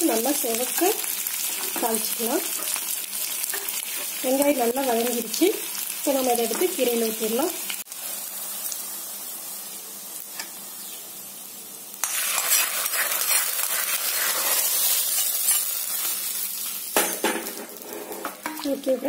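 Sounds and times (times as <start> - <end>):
hot oil sizzling: 0.0 - 19.0.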